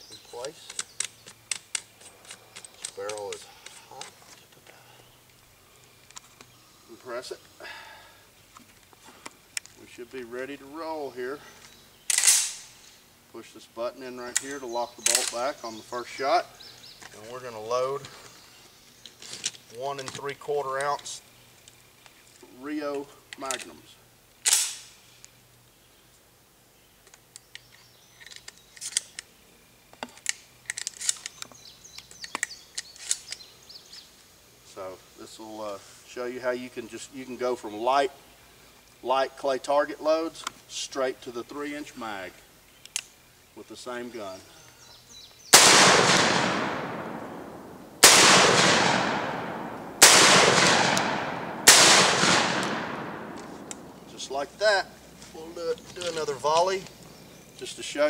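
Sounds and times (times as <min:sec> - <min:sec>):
shotgun shots with echo: 0:45.6 - 0:54.0.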